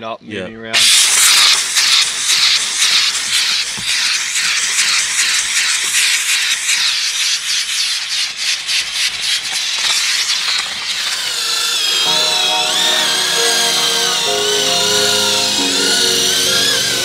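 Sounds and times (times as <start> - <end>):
steam cleaner hissing: 0.8 - 17.0.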